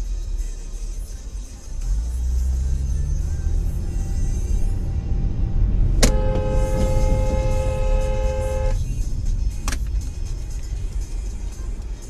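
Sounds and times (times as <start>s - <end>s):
car driving rumble: 0.1s - 12.0s
car horn blast: 6.0s - 8.8s.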